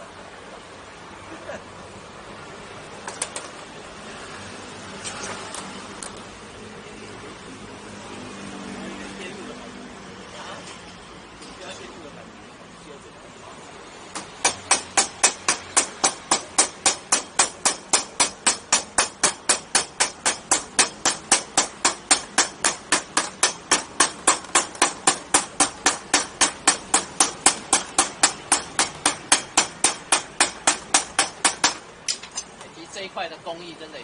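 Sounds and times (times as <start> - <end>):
hammer striking metal: 14.1 - 32.6.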